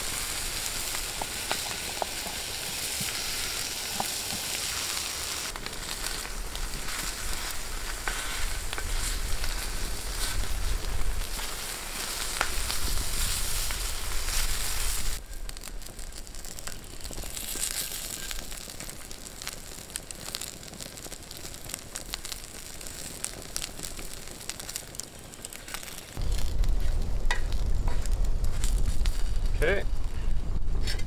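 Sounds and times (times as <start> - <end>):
meat sizzling in a pan: 0.0 - 29.8
wooden spatula clicks and scrapes: 5.6 - 10.5
low rumble: 26.2 - 31.0.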